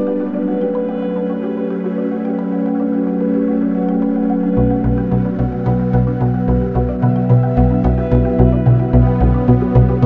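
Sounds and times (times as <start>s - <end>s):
ambient synthesizer music: 0.0s - 10.0s.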